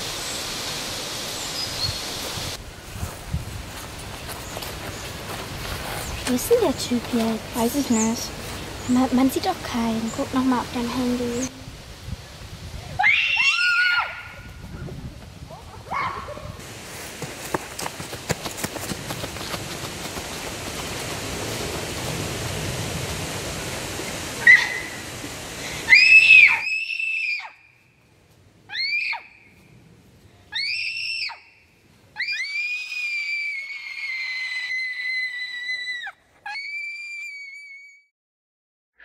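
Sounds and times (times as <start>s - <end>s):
running feet rustling leaves: 0.0s - 37.4s
girl screaming: 13.0s - 14.4s, 15.9s - 16.4s, 25.9s - 27.6s, 28.7s - 29.3s, 30.6s - 31.4s, 32.2s - 38.0s.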